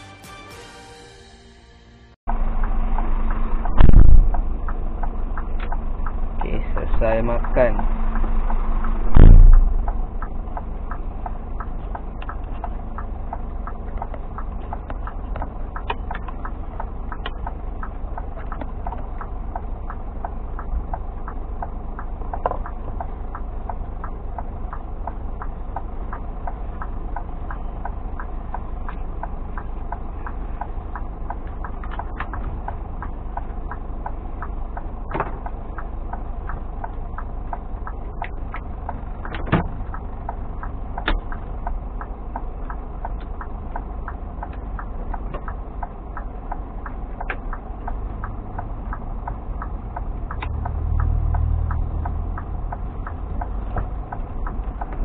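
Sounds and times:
light ticks: 2.6 - 55.0
heavy thump: 9.0 - 9.9.

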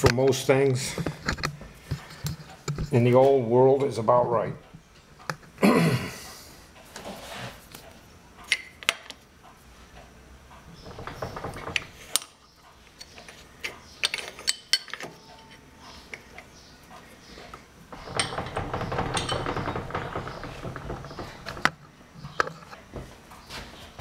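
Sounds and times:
metallic rattling and scraping: 10.7 - 12.4, 17.8 - 22.9.

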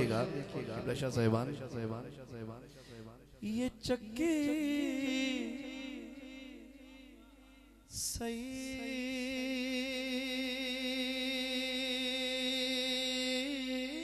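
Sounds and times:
man singing through a pa: 2.8 - 14.0.

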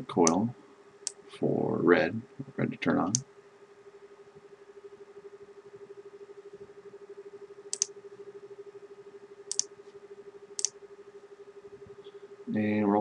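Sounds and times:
low steady hum: 0.0 - 13.0
computer mouse clicks: 7.7 - 7.9.

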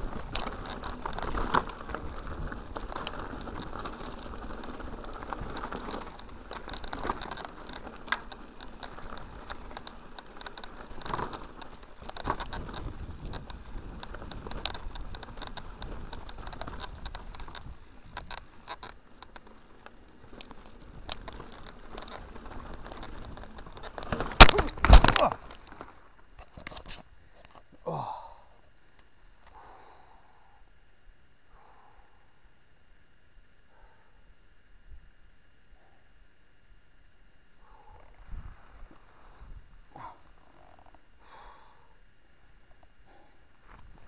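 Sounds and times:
bike rattling on rough track: 0.0 - 27.5
bike crashing: 20.4 - 26.1.

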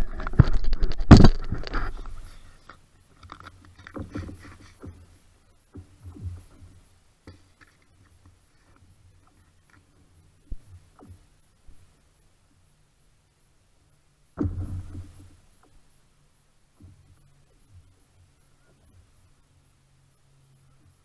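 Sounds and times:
scraping and knocking on ice: 0.0 - 2.3.

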